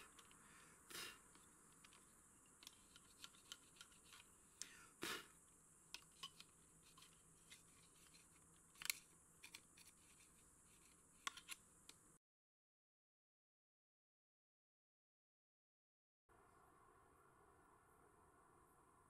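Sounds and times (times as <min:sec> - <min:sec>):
plastic clicks and scrapes: 0:01.3 - 0:04.3, 0:05.9 - 0:12.0.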